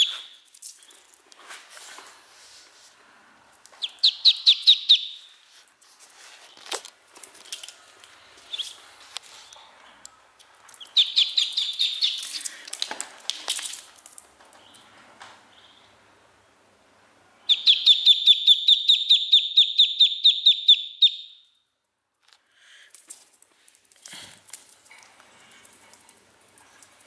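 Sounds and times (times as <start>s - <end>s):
duckling peeping: 0.0s - 0.4s, 3.8s - 5.3s, 8.4s - 8.8s, 10.7s - 12.3s, 17.4s - 21.3s.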